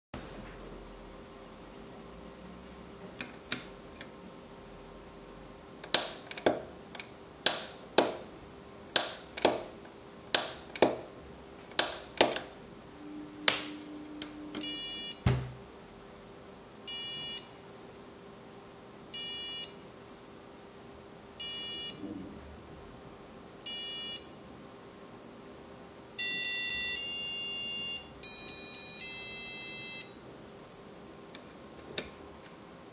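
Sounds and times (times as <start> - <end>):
buzzy beeps: 13.0 - 15.2, 16.9 - 17.6, 19.2 - 19.8, 21.4 - 22.1, 23.7 - 24.4, 26.2 - 30.2.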